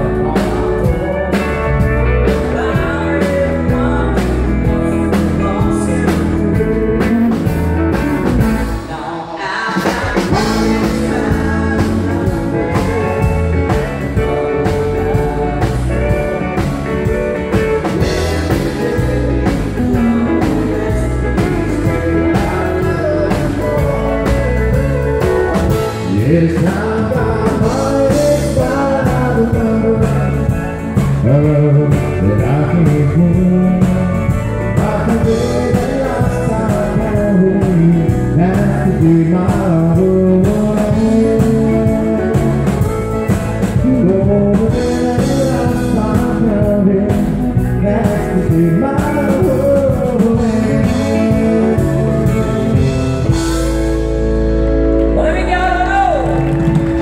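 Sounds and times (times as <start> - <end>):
person singing: 0.0 - 54.1
live country band playing: 0.0 - 57.0.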